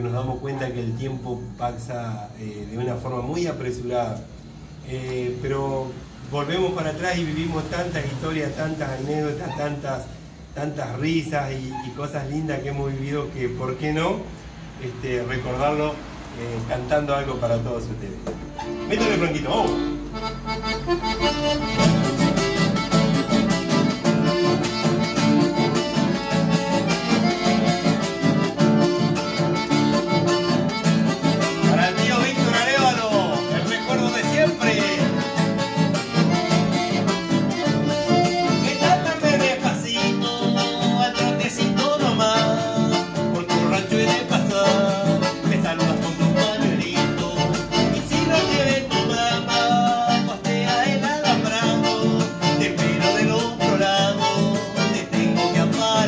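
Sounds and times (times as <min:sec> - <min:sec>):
button accordion melody: 0:18.3 - 0:56.0
strummed acoustic guitar: 0:18.3 - 0:56.0.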